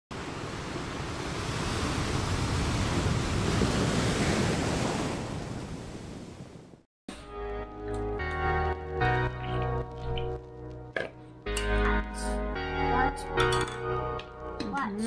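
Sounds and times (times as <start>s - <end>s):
ocean wave washing in: 0.1s - 6.7s.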